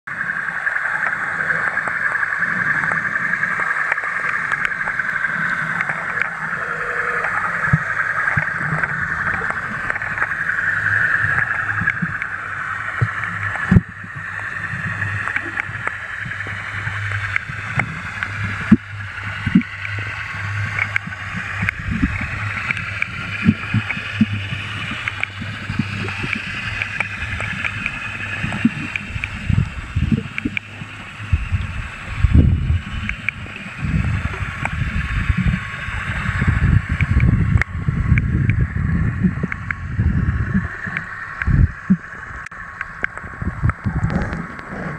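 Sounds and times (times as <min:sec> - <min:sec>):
muffled underwater hiss and hum: 0:00.1 - 0:44.9.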